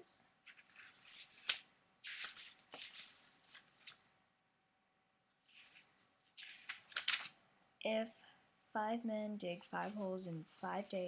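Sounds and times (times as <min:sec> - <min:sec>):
rustling and handling noise: 0:00.3 - 0:04.2, 0:05.3 - 0:07.4.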